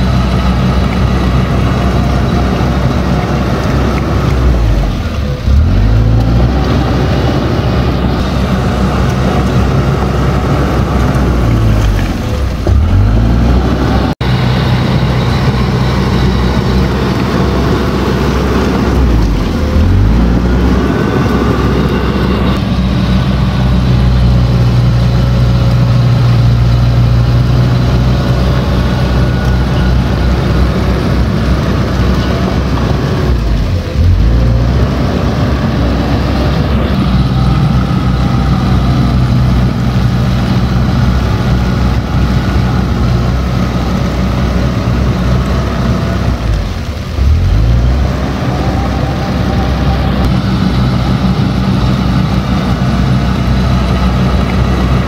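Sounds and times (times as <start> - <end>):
bulldozer diesel engine running: 0.0 - 55.0.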